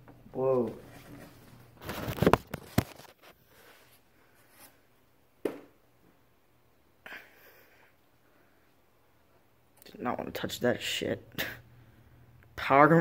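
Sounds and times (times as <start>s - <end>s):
plastic cover scraping rattle: 1.8s - 3.3s.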